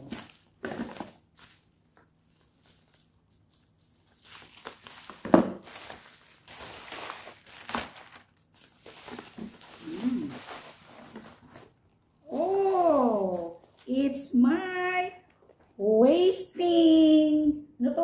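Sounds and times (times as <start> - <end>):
plastic packaging crinkling: 0.0 - 14.2.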